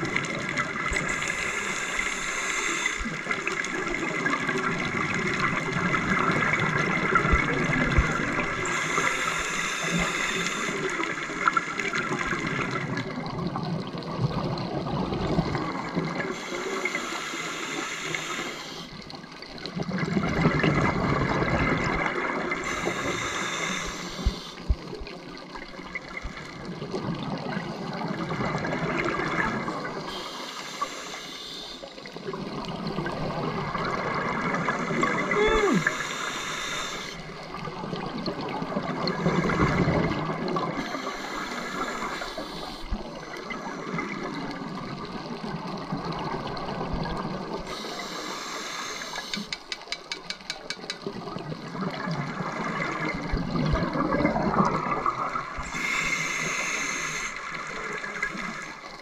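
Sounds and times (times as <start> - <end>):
exhaled air bubbling: 0.0 - 59.0
scuba regulator hissing: 16.4 - 18.9, 22.7 - 24.6, 35.3 - 37.2, 55.7 - 57.4.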